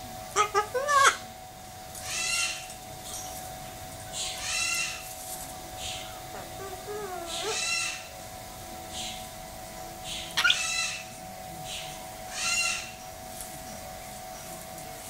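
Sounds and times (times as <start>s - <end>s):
faint steady hum: 0.0s - 15.0s
soft hissing calls: 0.0s - 15.0s
cockatoo screeches: 4.4s - 5.0s, 6.3s - 8.1s, 10.4s - 11.1s, 12.3s - 13.0s.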